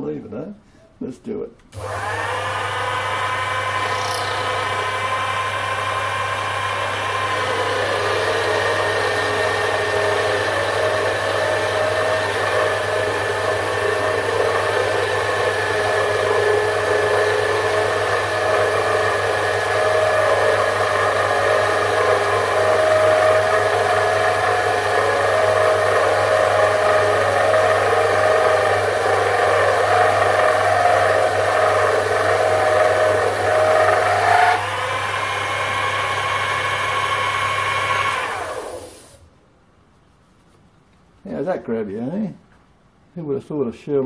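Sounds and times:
cutter turning steel: 1.8 - 39.1
lathe motor humming and whining: 1.8 - 39.2.

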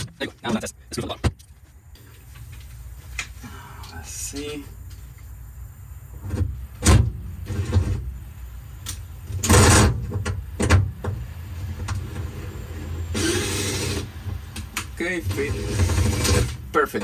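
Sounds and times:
parts knocking and clunking: 0.0 - 2.6, 8.8 - 12.4.

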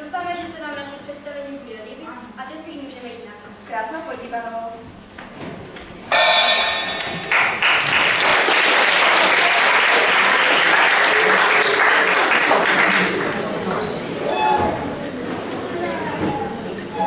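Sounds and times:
audience applause: 7.1 - 14.2.

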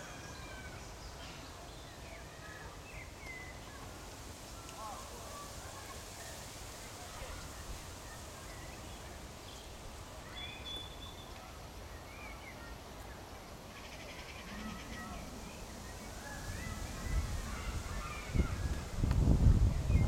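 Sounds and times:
faint bird calls: 13.7 - 18.9
wind on microphone: 15.1 - 20.0.

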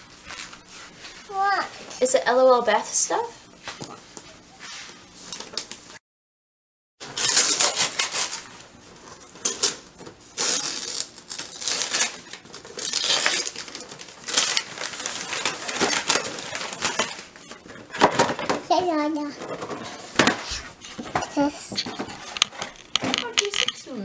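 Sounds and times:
wrapping paper tearing and crinkling: 7.0 - 18.4.

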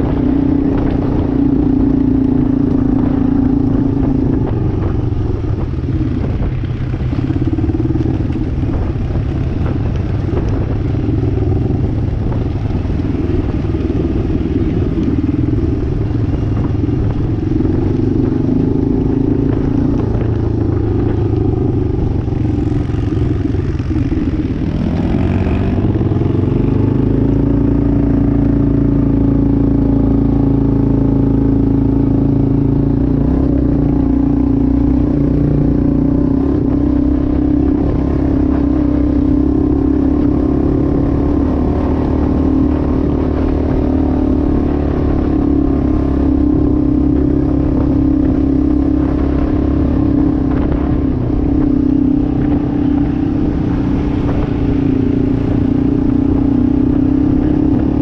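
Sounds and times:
atv engine running: 0.0 - 58.0.

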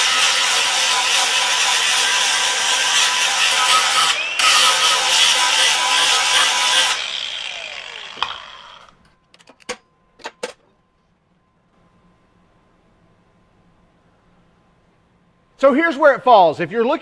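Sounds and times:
angle grinder grinding steel: 0.0 - 9.0
grinder spinning down whine: 0.0 - 9.0.

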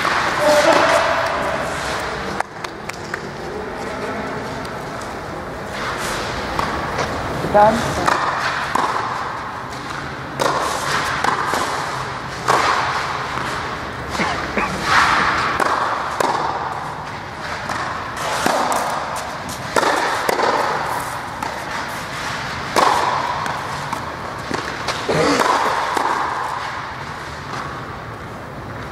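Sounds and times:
tennis balls struck by rackets: 6.3 - 14.2, 14.8 - 27.9
tennis balls bouncing: 6.4 - 14.2, 14.8 - 28.0.

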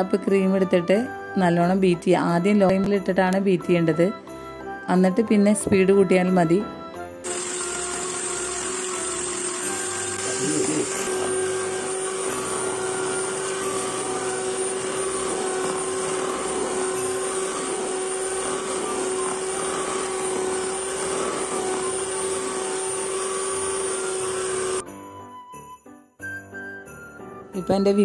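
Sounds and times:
electric hand mixer whipping cream: 7.2 - 24.8.

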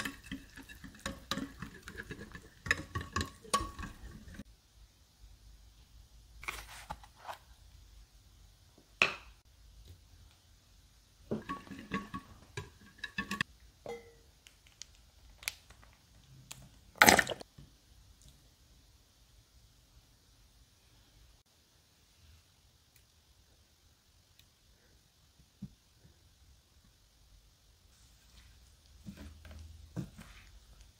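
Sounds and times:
whisk clinking in glass dish: 0.0 - 4.4, 11.4 - 14.2.

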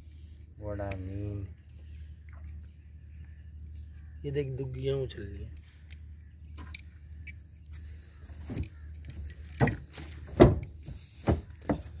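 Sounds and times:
steady low hum: 0.0 - 12.0
knocks and thumps: 9.6 - 12.0.

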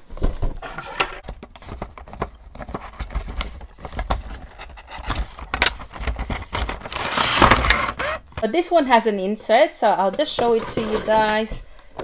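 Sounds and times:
cardboard box scraping and clicking: 0.5 - 8.2, 10.4 - 11.4.

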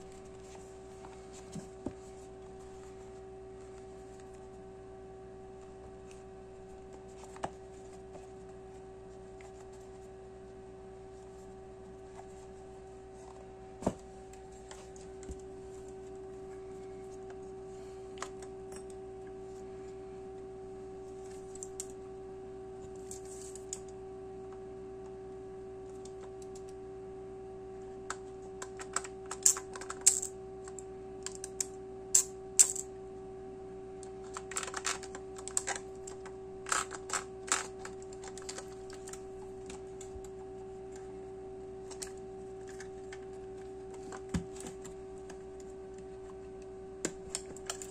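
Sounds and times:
steady hum: 0.0 - 47.9.

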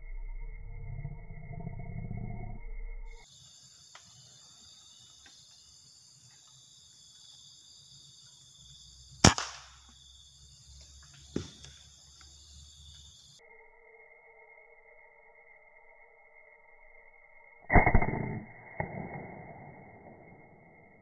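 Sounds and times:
high hiss of insects: 3.1 - 21.0
air rifle cracks: 9.2 - 9.8.

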